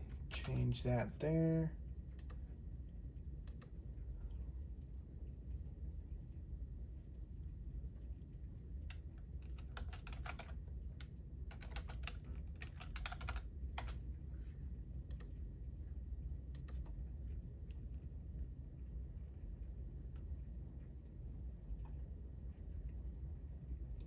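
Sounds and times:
low background hum: 0:00.0 - 0:24.0
typing on computer keyboard: 0:08.9 - 0:10.6, 0:11.5 - 0:14.0, 0:16.6 - 0:16.9.

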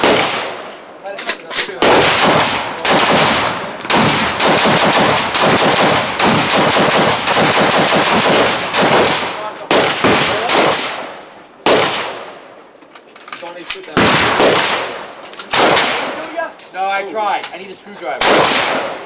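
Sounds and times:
gunfire from other shooters: 0:00.0 - 0:00.8, 0:01.8 - 0:12.4, 0:14.0 - 0:16.2, 0:18.2 - 0:19.0
rifle shots: 0:00.0 - 0:00.8, 0:01.6 - 0:12.4, 0:13.9 - 0:16.2, 0:18.2 - 0:19.0.

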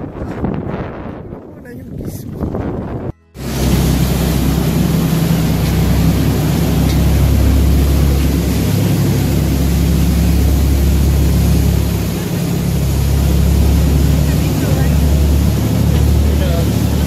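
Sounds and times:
churning wake water: 0:00.0 - 0:17.0
boat engine drone: 0:03.4 - 0:17.0.

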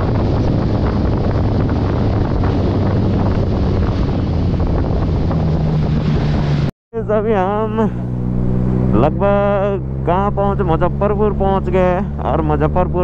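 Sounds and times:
wind buffeting microphone: 0:00.0 - 0:06.7
motorcycle engine hum: 0:00.0 - 0:13.0.

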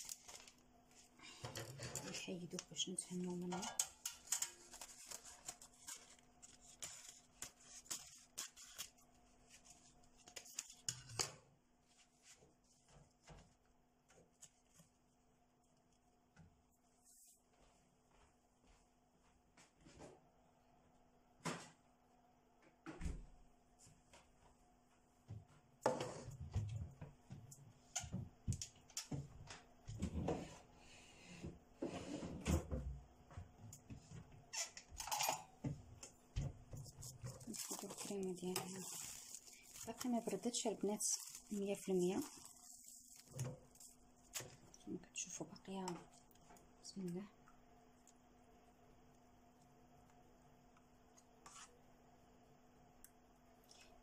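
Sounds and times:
thin sheet peeling crackling: 0:00.0 - 0:00.6, 0:04.0 - 0:11.2, 0:37.1 - 0:44.6
kitchen knocks and clatters: 0:01.3 - 0:02.2, 0:03.5 - 0:06.1, 0:32.2 - 0:38.7
rustling: 0:03.7 - 0:11.0, 0:36.8 - 0:44.8.

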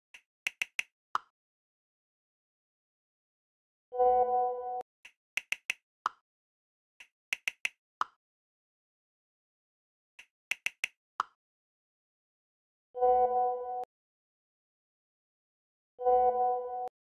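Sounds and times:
smartphone keyboard typing clicks: 0:00.5 - 0:01.3, 0:05.4 - 0:06.2, 0:07.0 - 0:08.2, 0:10.2 - 0:11.4.

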